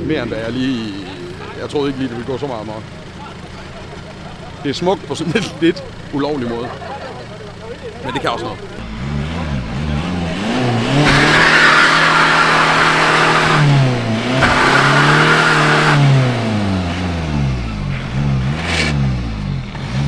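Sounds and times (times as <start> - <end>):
car engine revving: 0.0 - 20.0
tyres squealing: 6.8 - 16.3.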